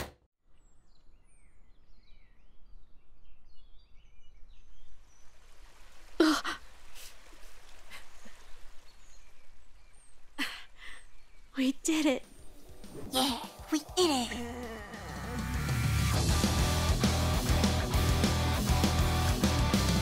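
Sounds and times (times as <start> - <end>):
soft outdoor ambience: 0.4 - 15.5
woman sighing: 10.4 - 11.1, 13.1 - 15.6.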